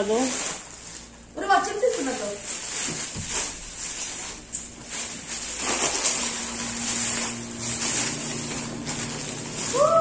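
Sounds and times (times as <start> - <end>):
plastic bag rustling and crinkling: 0.0 - 10.0.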